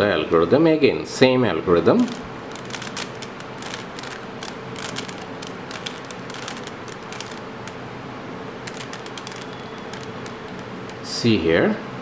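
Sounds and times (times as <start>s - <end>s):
plastic puzzle cube clicking: 2.1s - 7.8s, 8.6s - 11.0s.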